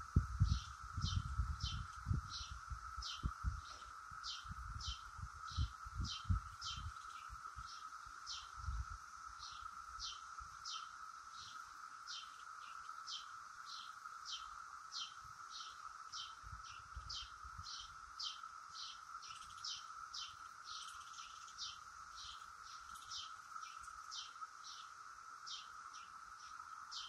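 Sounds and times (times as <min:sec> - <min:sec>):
wind rumble on microphone: 0:00.0 - 0:10.1, 0:16.3 - 0:17.9
cicadas droning in chorus: 0:00.0 - 0:27.0
bird chirping: 0:00.4 - 0:08.7, 0:09.4 - 0:27.0.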